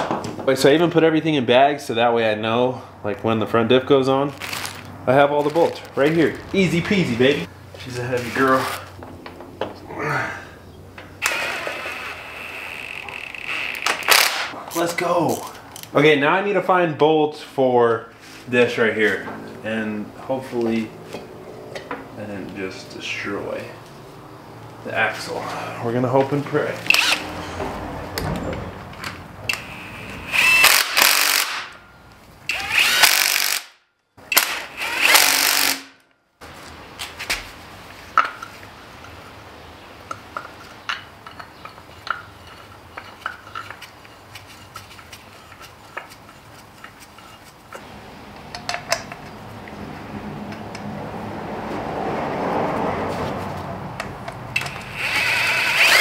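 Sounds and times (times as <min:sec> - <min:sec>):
cordless power tool on bolts: 0:11.2 - 0:14.5, 0:26.9 - 0:27.3, 0:29.5 - 0:31.8, 0:32.5 - 0:33.7, 0:34.3 - 0:36.0, 0:54.6 - 0:56.0
clinks of tools and hardware: 0:40.1 - 0:43.9, 0:48.4 - 0:49.4.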